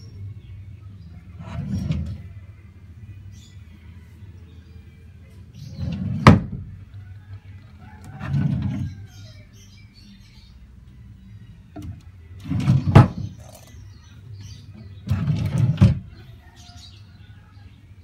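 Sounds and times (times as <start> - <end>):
drawer sliding on metal runners: 1.4 - 2.3, 5.7 - 6.6, 8.2 - 9.0, 12.4 - 13.4, 15.0 - 16.1
drawer knocking shut: 5.8 - 6.7, 12.5 - 13.3, 15.1 - 16.0.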